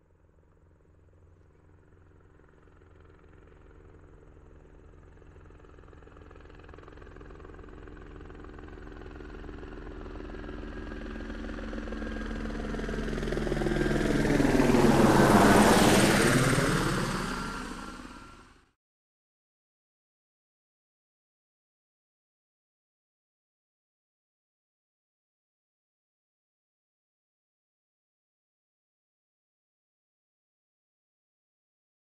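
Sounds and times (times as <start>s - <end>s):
helicopter flying past: 0.1s - 18.7s.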